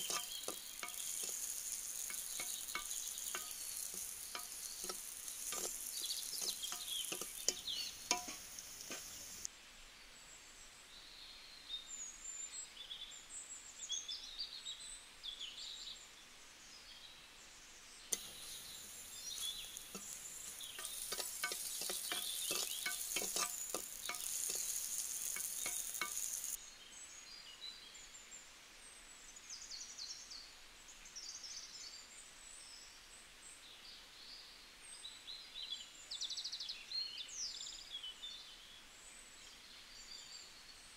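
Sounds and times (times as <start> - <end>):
birds chirping: 0.0 - 9.5, 18.1 - 26.6
food sizzling in a pot: 0.0 - 9.5, 18.1 - 26.6
ladle scraping a pot: 0.0 - 9.5, 18.1 - 26.6.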